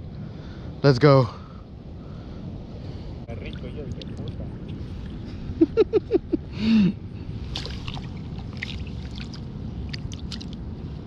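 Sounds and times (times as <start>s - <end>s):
rushing water-like background: 3.0s - 11.0s.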